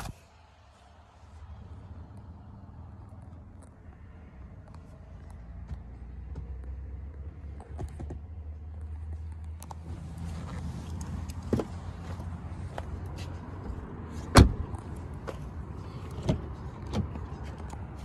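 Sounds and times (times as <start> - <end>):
car engine idling: 8.6 - 18.0.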